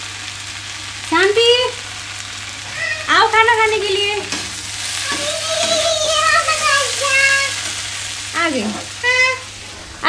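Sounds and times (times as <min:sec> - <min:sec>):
sizzling hiss: 0:00.0 - 0:10.0
person calling out: 0:02.7 - 0:03.6.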